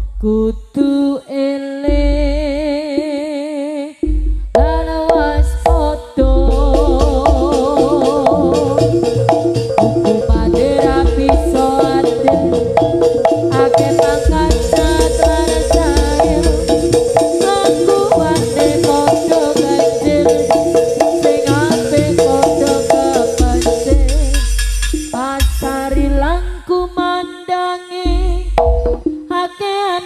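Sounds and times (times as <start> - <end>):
drums: 4.0 - 26.3, 28.1 - 29.3
steady held tone: 4.0 - 26.7
metallophone notes: 4.0 - 29.4.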